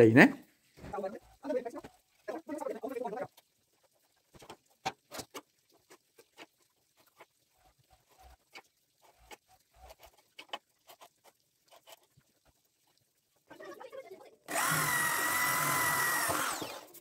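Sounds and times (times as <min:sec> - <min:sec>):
electric drill whining through metal: 0:14.5 - 0:17.0.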